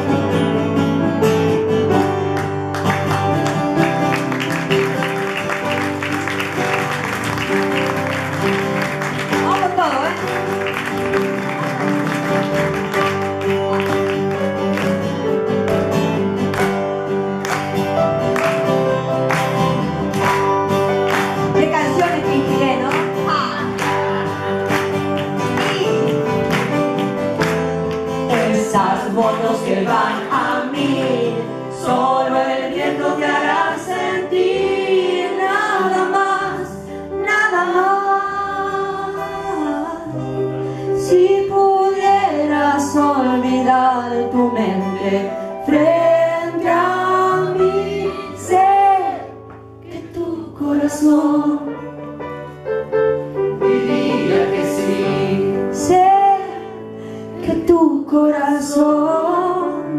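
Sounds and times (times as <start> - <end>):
upright piano accompaniment: 0.0 - 59.9
woman singing: 28.3 - 31.7, 35.1 - 51.8, 55.5 - 59.9.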